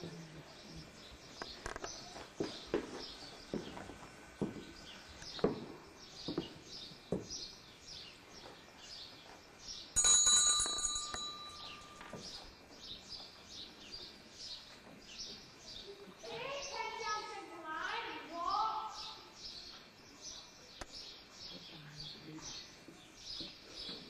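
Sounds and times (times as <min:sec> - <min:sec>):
small birds chirping: 0:00.0 - 0:24.0
loud bell-like ring: 0:10.0 - 0:12.2.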